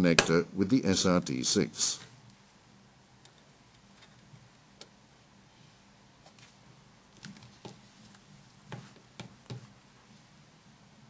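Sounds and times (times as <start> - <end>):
low steady hum: 0.0 - 11.0
faint sharp clicks and taps: 7.1 - 9.7.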